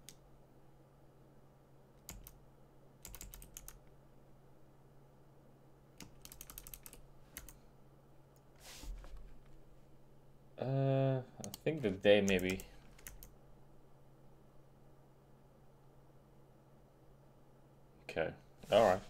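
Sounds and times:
low steady hum: 0.0 - 19.0
computer keyboard typing: 2.0 - 2.4, 3.0 - 3.8, 6.0 - 7.6, 11.4 - 13.4.

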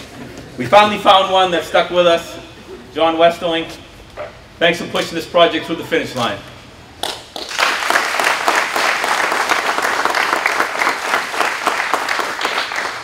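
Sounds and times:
audience applauding: 7.0 - 13.0.

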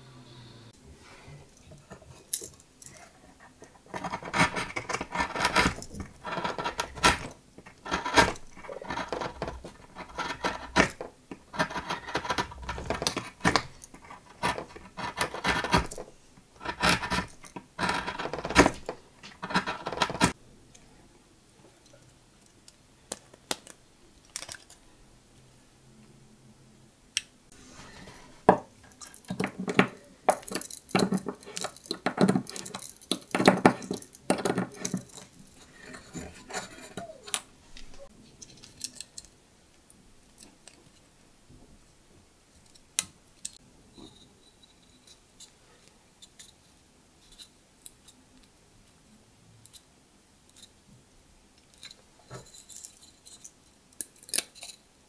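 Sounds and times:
knife blade scraping wood: 34.6 - 37.2.

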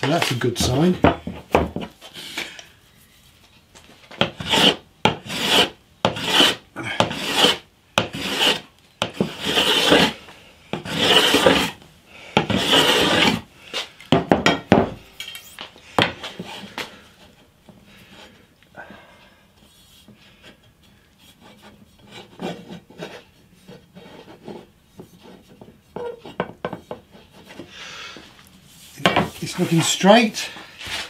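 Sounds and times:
hand plane shaving wood: 4.2 - 10.2, 10.8 - 11.8, 12.4 - 13.4.

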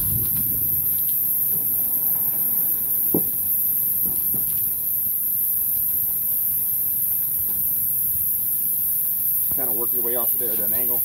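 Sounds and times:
steady high hiss: 0.0 - 11.0
truck tire knocking on wheel hub: 3.0 - 4.7.

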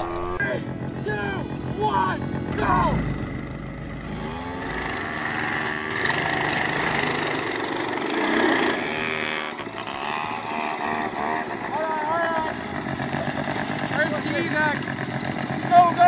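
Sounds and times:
go-kart engine revving: 0.0 - 16.0.

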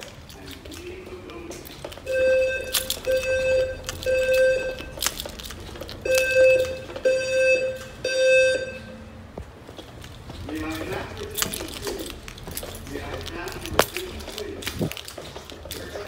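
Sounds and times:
fire alarm buzzy beeps: 2.0 - 5.3, 6.0 - 9.2.

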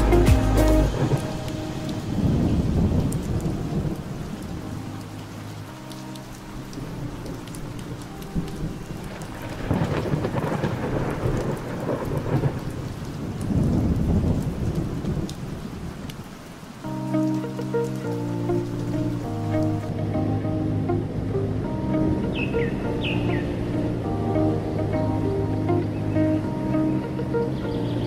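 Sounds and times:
steady rain: 0.0 - 28.0
low rolling thunder: 0.9 - 4.6, 8.4 - 16.1.

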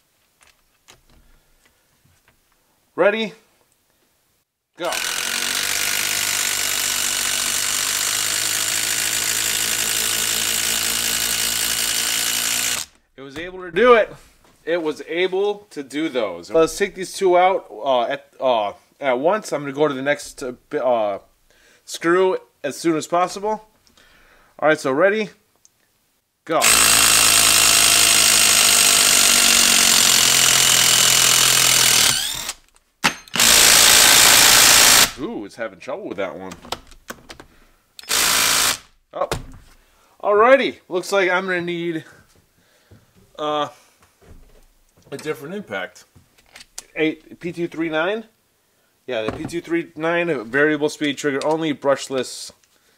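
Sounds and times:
impact driver hammering: 4.9 - 13.6, 26.6 - 35.2, 38.0 - 39.6.

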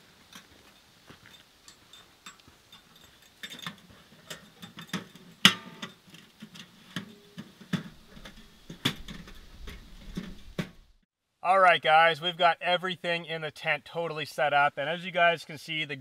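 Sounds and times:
camping gear knocking and clattering: 0.0 - 10.9.

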